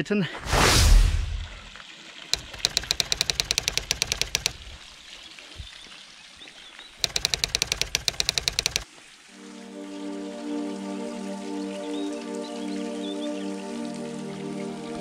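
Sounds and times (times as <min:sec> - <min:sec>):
rapid sharp taps: 0:02.4 - 0:04.7, 0:07.0 - 0:08.8.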